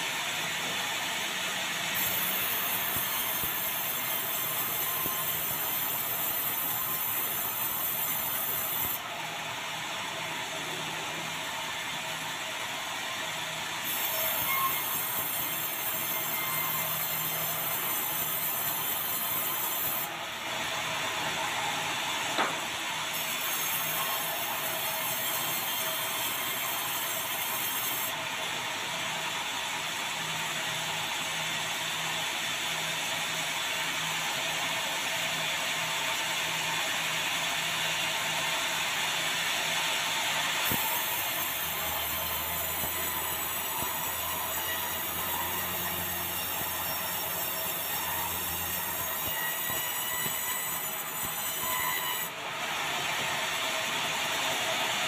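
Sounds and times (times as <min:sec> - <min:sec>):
band saw cutting wood: 0:01.9 - 0:09.0, 0:13.8 - 0:20.2, 0:21.3 - 0:28.2, 0:40.6 - 0:53.2
knock: 0:22.4 - 0:22.6.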